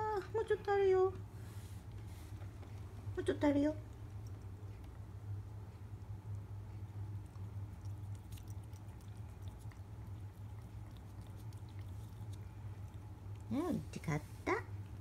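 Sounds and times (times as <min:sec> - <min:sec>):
low steady hum: 0:00.0 - 0:15.0
cat licking: 0:03.8 - 0:15.0.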